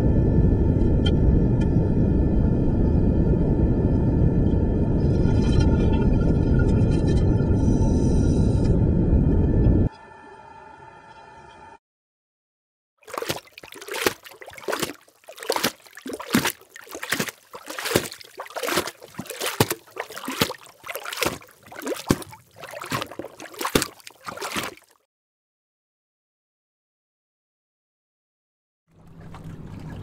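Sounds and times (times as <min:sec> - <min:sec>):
water sloshing and splashing: 0:13.0 - 0:25.1, 0:28.9 - 0:30.0.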